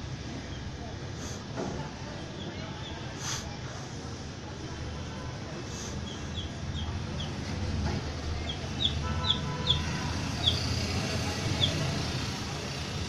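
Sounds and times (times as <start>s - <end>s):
baby chicks peeping: 6.0s - 7.5s, 8.4s - 12.9s.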